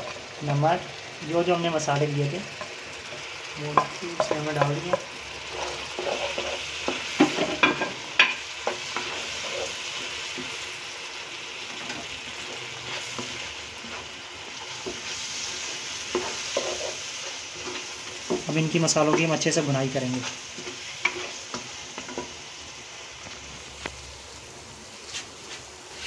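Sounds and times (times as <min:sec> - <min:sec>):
food sizzling in oil: 0:00.0 - 0:26.0
spatula scraping and knocking pan: 0:02.6 - 0:10.7, 0:11.7 - 0:22.4.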